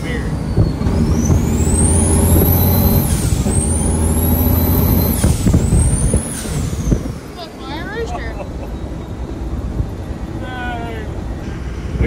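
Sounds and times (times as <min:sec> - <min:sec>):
diesel truck engine drone: 0:00.0 - 0:12.0
turbo whistling: 0:00.3 - 0:07.1.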